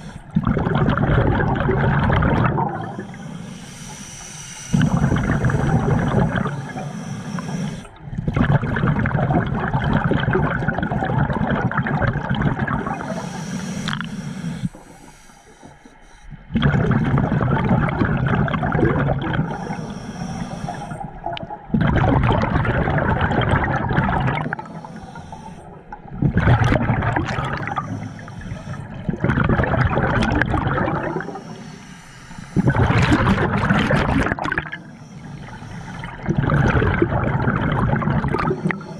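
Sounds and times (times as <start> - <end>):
underwater exhaust bubbles: 0.0 - 38.9.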